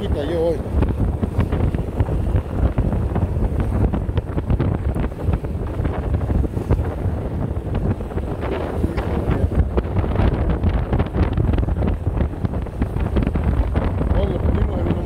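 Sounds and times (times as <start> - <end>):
water slapping boat hull: 0.0 - 15.0
wind buffeting microphone: 0.0 - 15.0.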